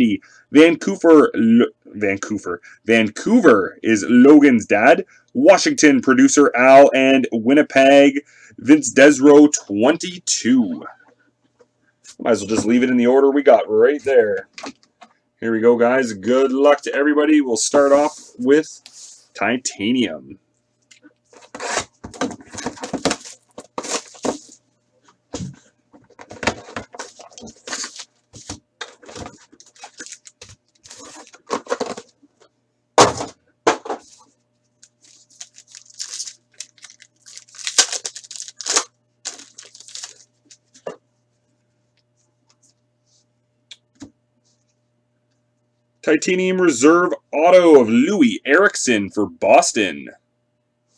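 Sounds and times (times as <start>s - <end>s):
cardboard and wrappers tearing: 22.5s - 24.6s, 26.9s - 31.9s, 34.8s - 40.3s.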